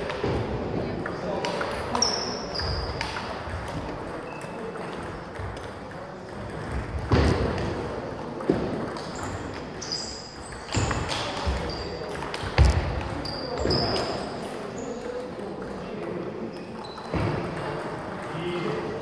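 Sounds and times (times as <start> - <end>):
table tennis balls clicking: 1.0 - 12.8.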